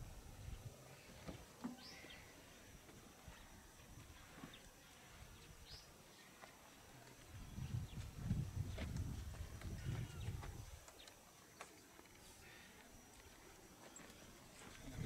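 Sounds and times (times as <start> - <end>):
faint bird chirps: 0.9 - 6.4.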